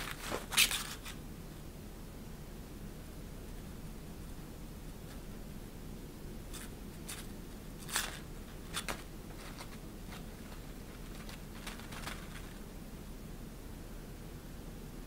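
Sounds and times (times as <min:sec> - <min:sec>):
crinkly fabric rustling: 0:00.0 - 0:01.2, 0:06.6 - 0:12.7.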